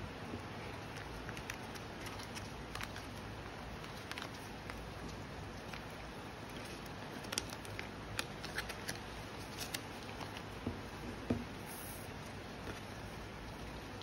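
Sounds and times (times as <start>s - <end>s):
steady hiss: 0.0s - 14.0s
plastic sleeves clicking and crinkling: 0.8s - 10.6s.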